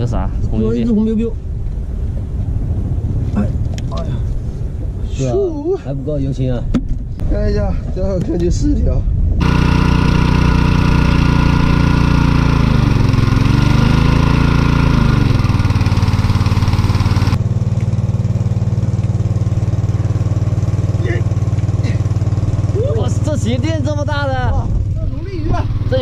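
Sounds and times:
petrol water pump engine: 9.4s - 24.5s, 25.1s - 26.0s.

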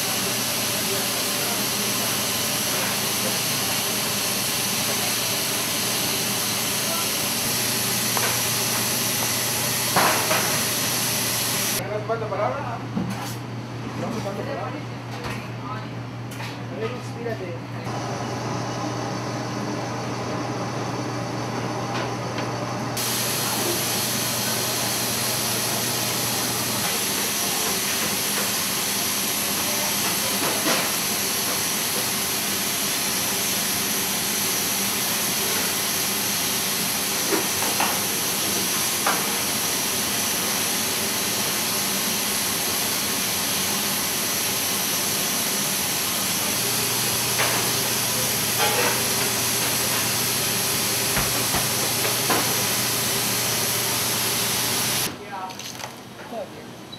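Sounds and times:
steady loud hiss: 0.0s - 11.8s, 23.0s - 55.1s.

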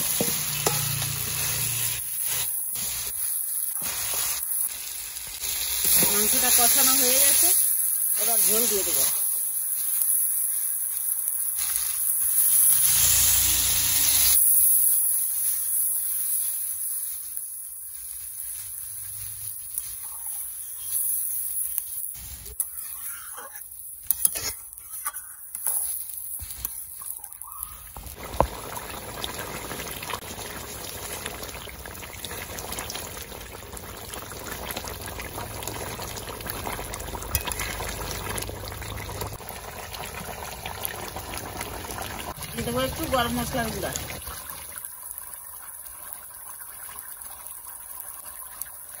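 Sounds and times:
water pouring into pan: 0.0s - 49.0s
metal ladle knocking pan: 0.1s - 1.1s
curry bubbling: 15.0s - 49.0s.

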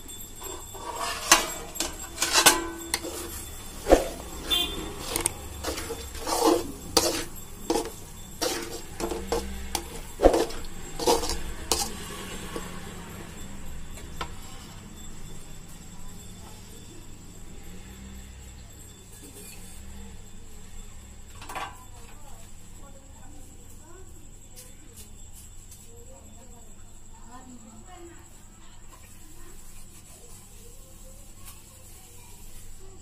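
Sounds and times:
ladle clinking and scraping metal pot: 0.0s - 14.9s.

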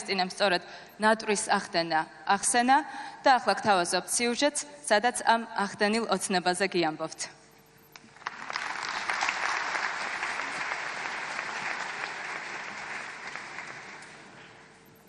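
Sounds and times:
audience applauding: 8.0s - 14.7s.

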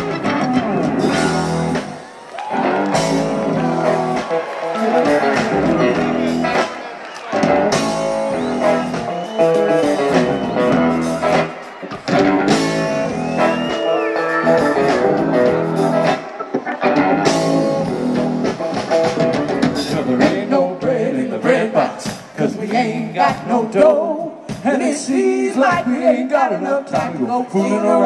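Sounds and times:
electric guitar: 0.0s - 22.4s
drum kit: 0.0s - 28.0s.

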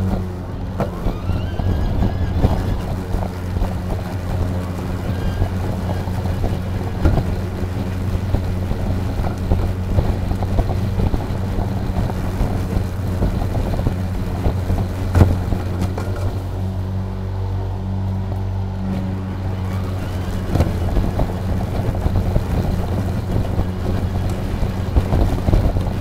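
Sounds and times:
lawn mower hum: 0.0s - 26.0s.

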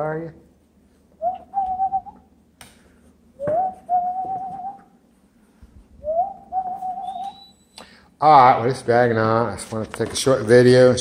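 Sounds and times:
puppy whining: 6.4s - 7.8s.

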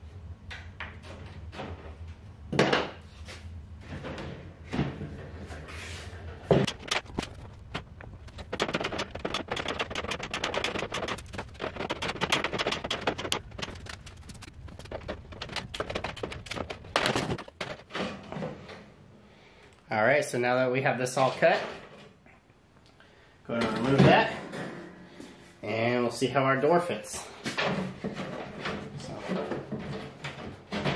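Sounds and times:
wooden knocks: 6.5s - 18.0s.

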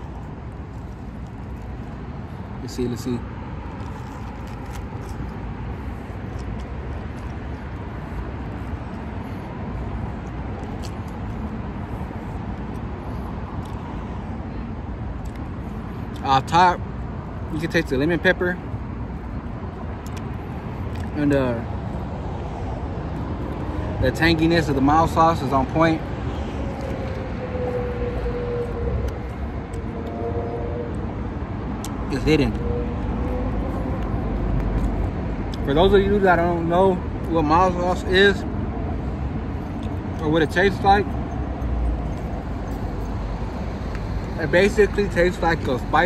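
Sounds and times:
road traffic rumble: 0.0s - 46.0s
vehicle passing hum: 18.8s - 46.0s.

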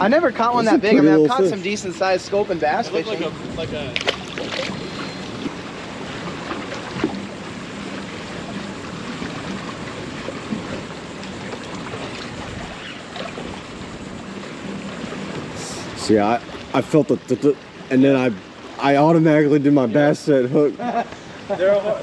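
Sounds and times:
water lapping against boat hull: 2.0s - 21.6s
wind on microphone: 2.4s - 16.6s
splash in water: 4.0s - 5.6s.

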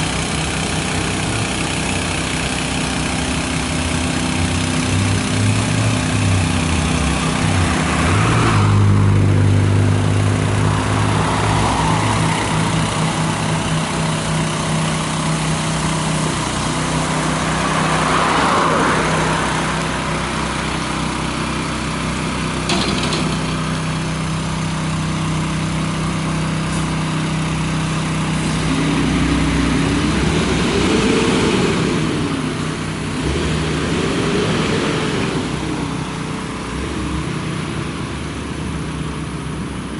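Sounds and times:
heavy truck engine running: 0.0s - 39.9s.

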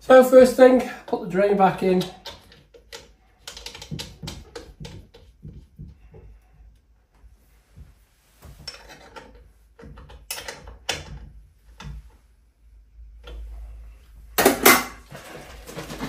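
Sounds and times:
plastic clatter: 2.0s - 5.6s, 14.4s - 16.0s.

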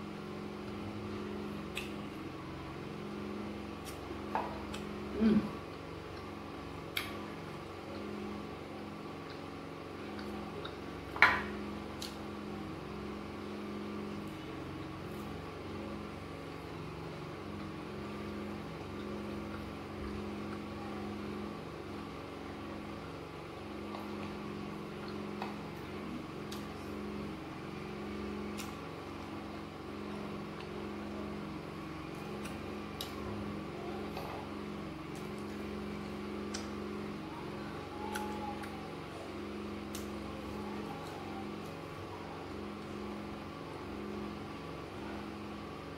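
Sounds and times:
low machine hum: 0.0s - 45.9s.

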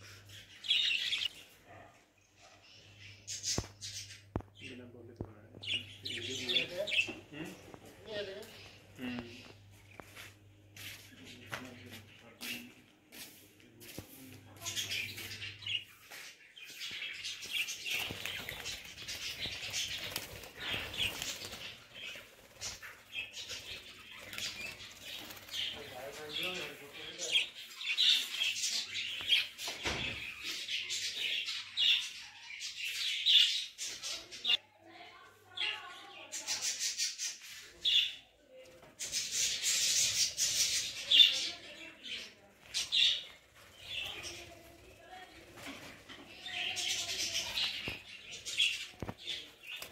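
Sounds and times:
budgerigars chirping: 0.0s - 1.8s
wings flapping: 16.8s - 27.4s, 42.2s - 49.9s.

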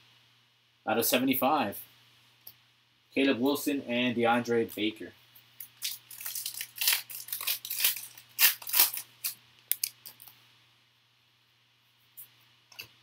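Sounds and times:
foil wrapper tearing and crinkling: 5.8s - 10.2s.

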